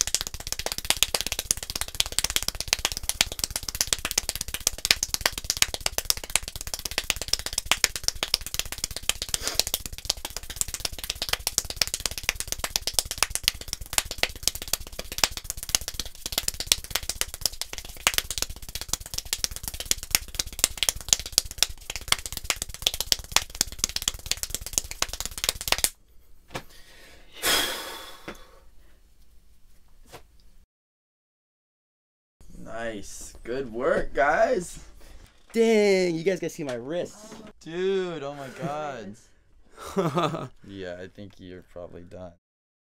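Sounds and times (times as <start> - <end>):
rapid hand clapping: 0.0 - 26.0, 40.0 - 40.5.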